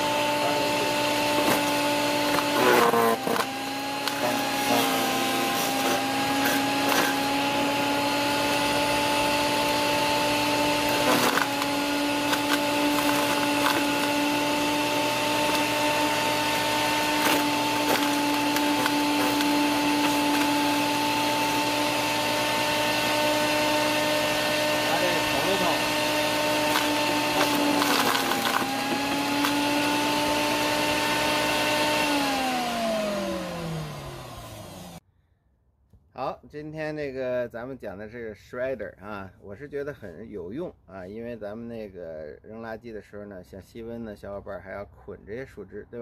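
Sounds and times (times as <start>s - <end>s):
branch shredder motor whine: 0.0s - 35.0s.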